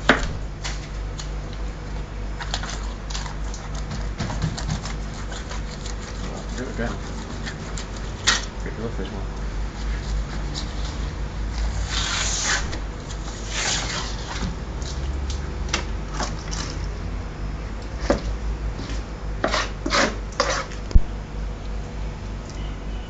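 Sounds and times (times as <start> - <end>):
skin scraping and tearing: 2.4 - 8.6.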